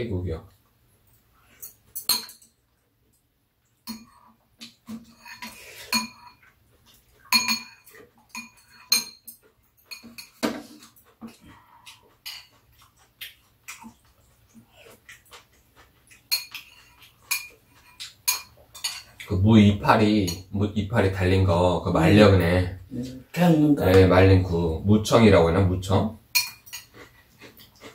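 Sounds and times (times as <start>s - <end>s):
utensils clinking against bowls: 1.5s - 2.6s, 3.8s - 6.5s, 7.2s - 12.6s, 16.2s - 19.3s, 20.0s - 20.5s, 26.3s - 27.1s.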